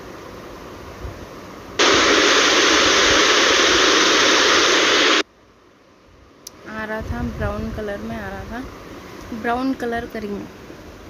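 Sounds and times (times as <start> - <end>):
loud static-like hiss: 0.0 - 5.8.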